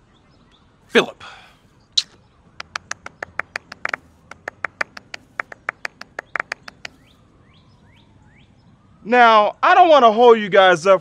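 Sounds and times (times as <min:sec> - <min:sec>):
people clapping: 0:02.6 - 0:07.0.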